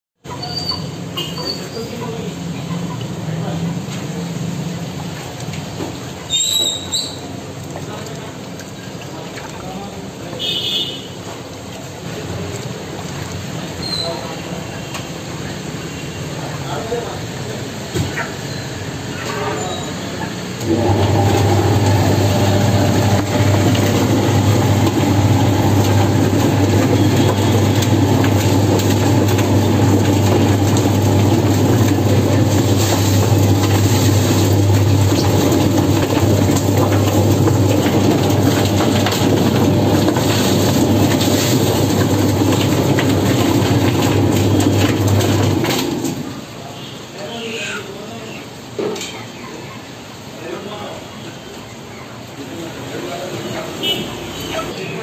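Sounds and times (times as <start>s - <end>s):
plucker motor hum: 20.6s - 40.0s
drum spinning and rattling: 20.6s - 46.4s.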